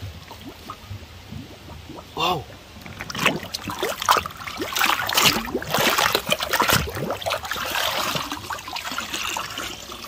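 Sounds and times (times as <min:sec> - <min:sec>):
stream water splashing and gurgling: 0:00.0 - 0:10.0
water sloshing in toy drum: 0:02.8 - 0:10.0.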